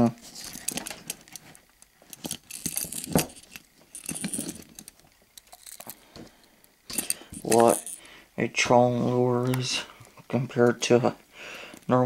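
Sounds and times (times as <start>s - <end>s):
fishing hooks jingling: 2.1s - 6.0s, 6.9s - 8.1s.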